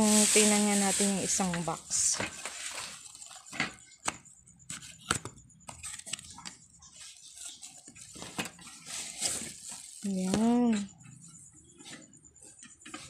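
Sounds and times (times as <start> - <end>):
cardboard box rustling: 7.0 - 10.2.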